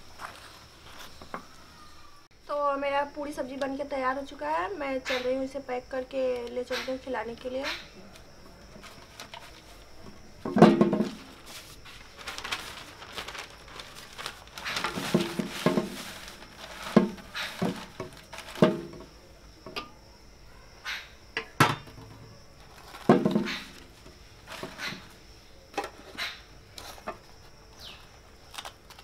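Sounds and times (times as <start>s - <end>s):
newspaper rustling: 0.0s - 1.4s, 8.0s - 19.1s, 22.5s - 25.2s.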